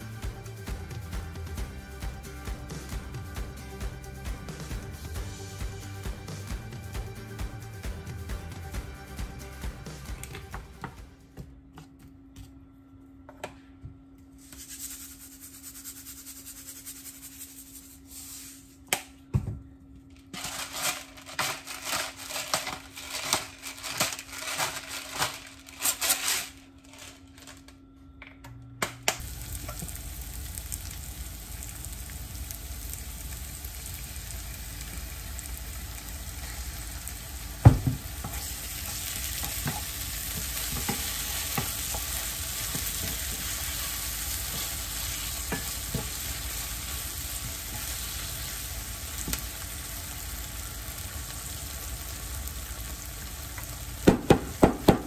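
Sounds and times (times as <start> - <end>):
pepper mill grinding: 20.3 - 27.6, 38.0 - 49.8
onions sizzling in a frying pan: 29.2 - 55.0.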